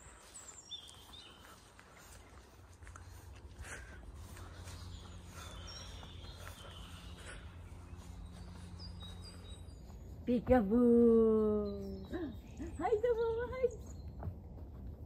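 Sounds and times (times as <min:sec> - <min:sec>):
low steady rumble: 0:01.5 - 0:15.0
faint high bird chirps: 0:04.5 - 0:10.4, 0:11.3 - 0:14.3.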